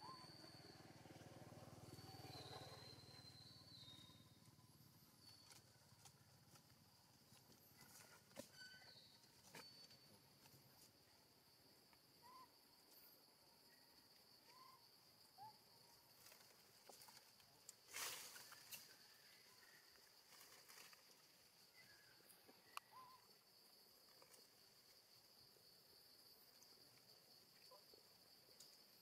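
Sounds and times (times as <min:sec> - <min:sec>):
high-pitched insect drone: 0:00.0 - 0:04.4.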